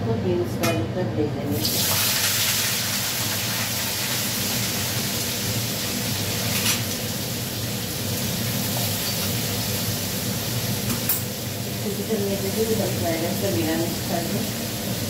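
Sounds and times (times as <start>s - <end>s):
vegetables sizzling in oil: 1.5s - 15.0s.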